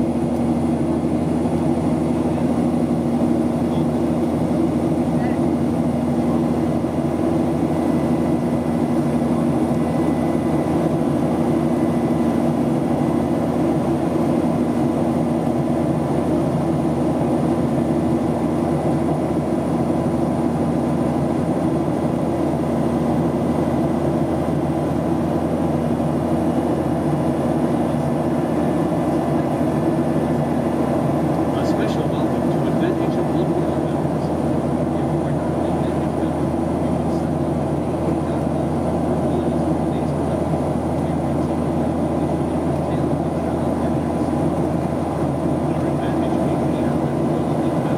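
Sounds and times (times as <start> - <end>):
airliner engines roaring: 0.0 - 47.9.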